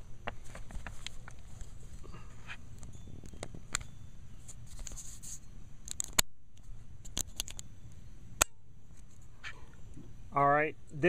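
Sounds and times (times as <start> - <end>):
camera handling rumble: 0.2 - 7.7.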